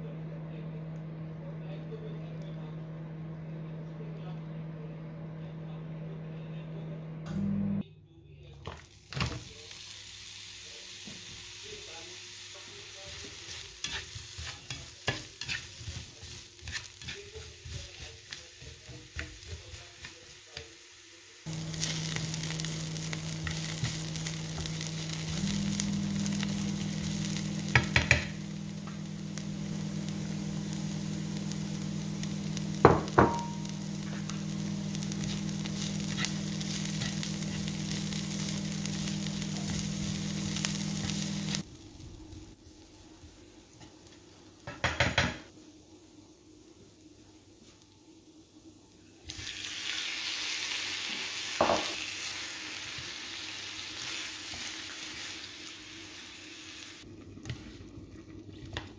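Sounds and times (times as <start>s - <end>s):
low hum: 0.0s - 7.8s, 21.5s - 42.5s
onions sizzling in a frying pan: 8.7s - 58.9s
spatula scraping a pan: 13.2s - 20.4s, 35.2s - 37.2s.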